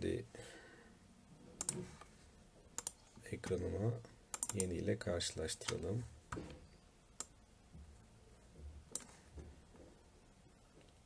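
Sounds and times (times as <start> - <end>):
computer mouse clicks: 1.6 - 1.8, 2.8 - 3.0, 4.3 - 4.7, 8.9 - 9.2.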